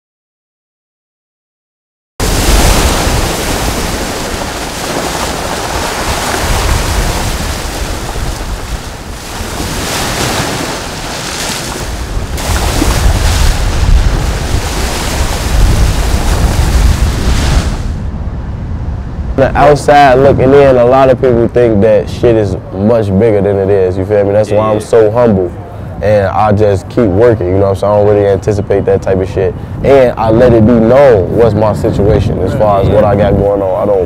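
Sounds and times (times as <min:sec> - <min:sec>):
waves breaking on pebbles: 0:02.2 - 0:18.0
wind buffeting microphone: 0:02.2 - 0:34.0.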